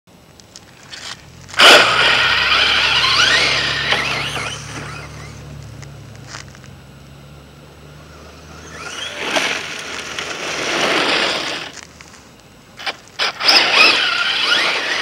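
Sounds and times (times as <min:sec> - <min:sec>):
gravel spraying from wheels: 0:00.4 - 0:15.0
toy truck motor whining: 0:00.9 - 0:05.5, 0:08.1 - 0:11.8, 0:12.8 - 0:15.0.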